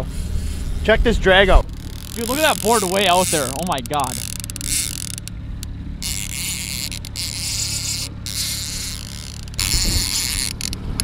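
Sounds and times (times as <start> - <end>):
boat motor humming: 0.0 - 11.0
fishing reel drag buzzing: 1.6 - 11.0.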